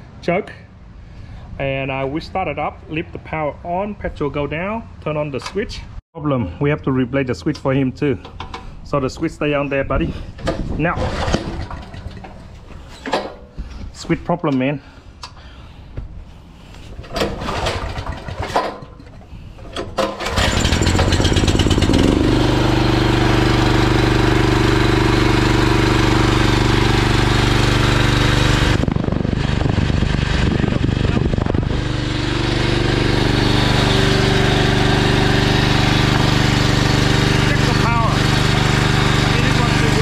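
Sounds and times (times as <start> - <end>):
generator engine running: 20.0 - 40.0.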